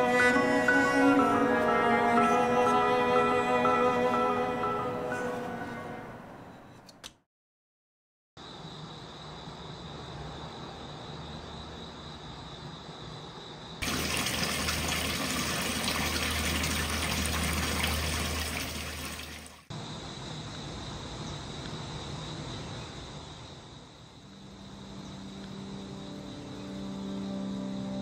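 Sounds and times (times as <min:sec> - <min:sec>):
running water rushing: 0:13.8 - 0:19.7.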